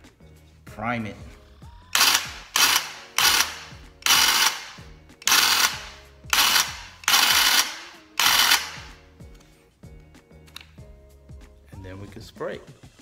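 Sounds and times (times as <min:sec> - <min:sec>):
airless paint sprayer bursts: 0:02.0 - 0:09.0.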